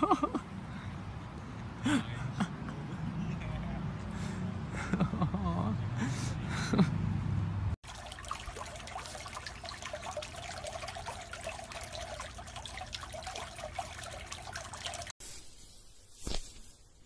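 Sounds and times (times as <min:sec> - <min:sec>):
water trickling and splashing: 0:07.8 - 0:15.2.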